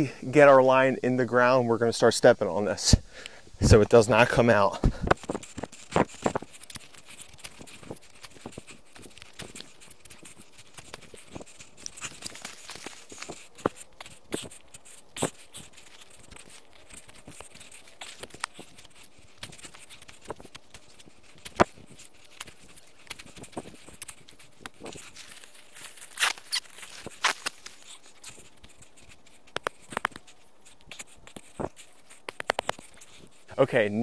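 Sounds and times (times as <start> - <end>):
shovel digging into soil: 24.8 - 27.9.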